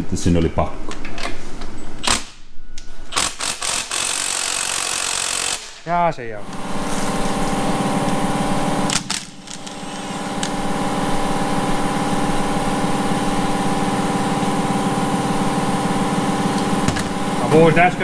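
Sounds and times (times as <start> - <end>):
small motor humming: 3.2 - 5.8, 6.4 - 17.6.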